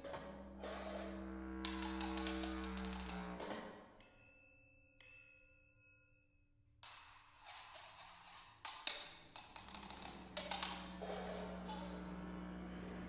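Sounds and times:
noisy rasping sound: 9.9s - 13.0s.

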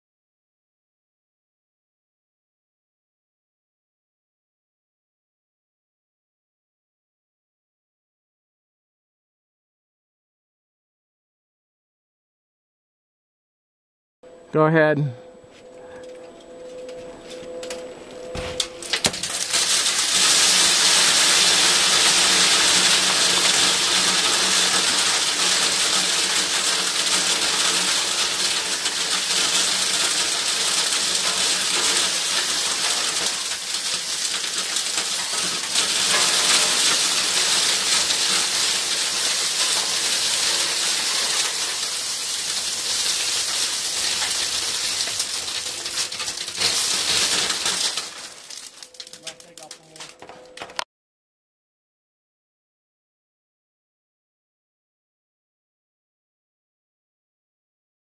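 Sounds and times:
acorns rattling through metal tube: 18.7s - 50.8s.

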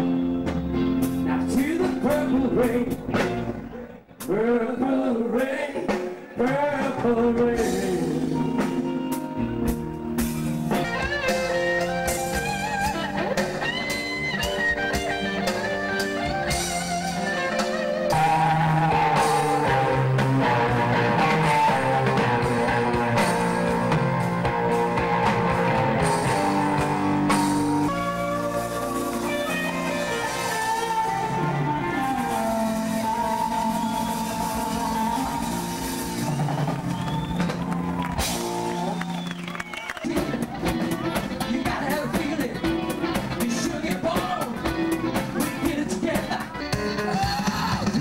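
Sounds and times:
live rock band playing: 0.0s - 48.0s
person singing: 1.2s - 3.3s, 4.2s - 9.0s, 16.2s - 24.2s, 40.1s - 48.0s.

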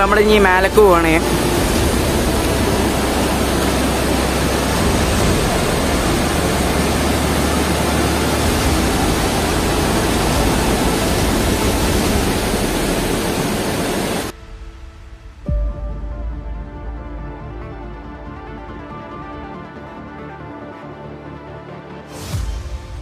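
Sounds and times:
waterfall rushing: 0.0s - 14.4s
low rumble: 0.0s - 19.6s.

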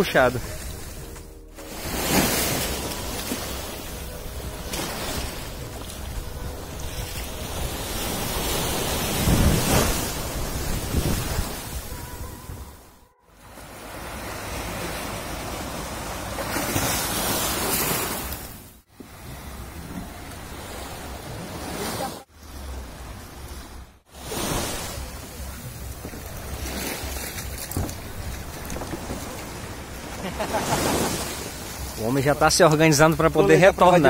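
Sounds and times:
wind buffeting microphone: 5.4s - 13.0s.

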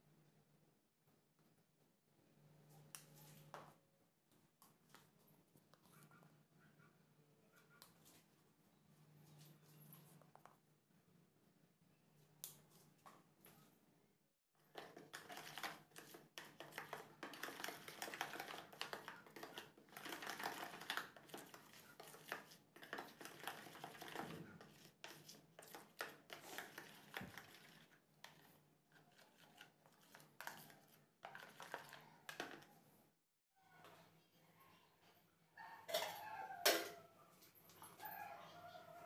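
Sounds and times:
spoon stirring paste in plastic bowl: 14.6s - 32.9s.

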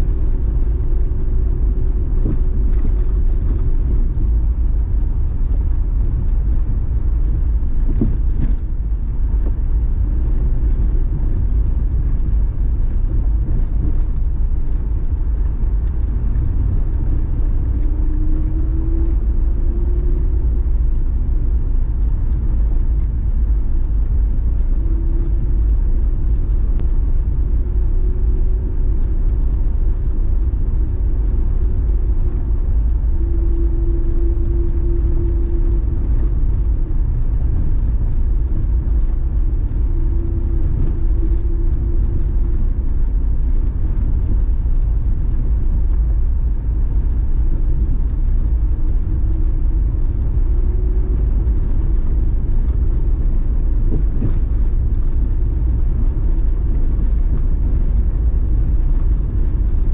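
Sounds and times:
engine and road rumble in car: 0.0s - 59.9s
engine hum: 0.0s - 59.9s.

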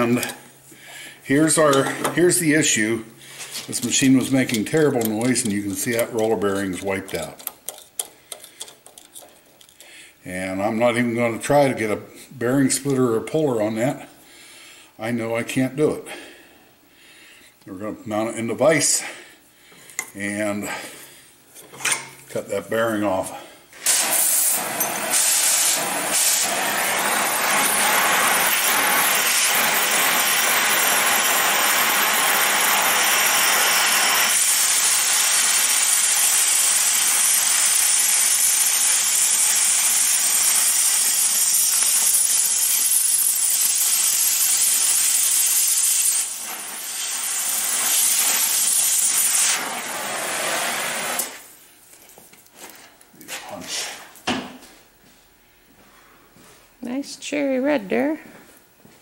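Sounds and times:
cutting torch hissing: 23.8s - 51.6s.

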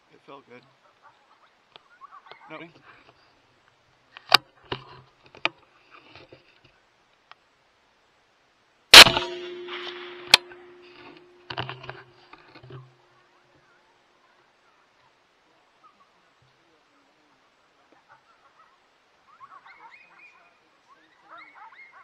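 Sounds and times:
rifle shot with echo: 8.9s - 12.1s
rifle clicks: 9.0s - 12.0s.

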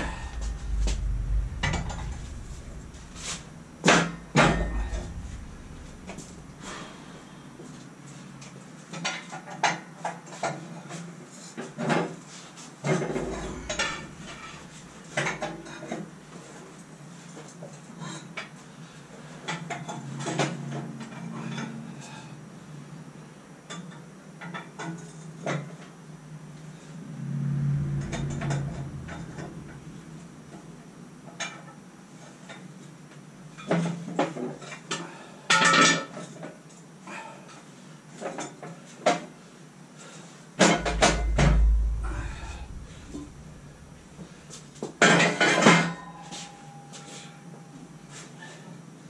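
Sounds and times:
heavy low thumps: 0.0s - 7.6s, 13.1s - 15.1s, 26.8s - 31.0s, 40.7s - 44.8s.

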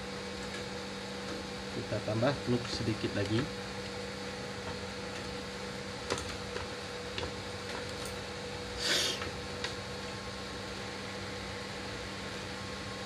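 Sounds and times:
hot-air blower hum: 0.0s - 13.0s.

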